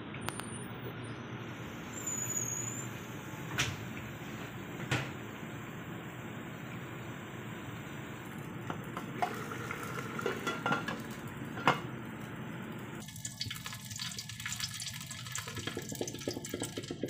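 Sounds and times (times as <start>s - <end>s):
oil sizzling in pot: 7.2s - 17.0s
pot hissing: 7.6s - 11.5s.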